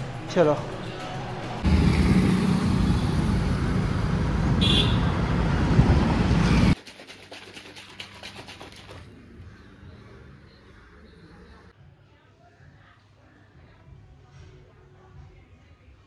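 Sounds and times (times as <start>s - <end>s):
traffic rumble: 0.0s - 6.8s.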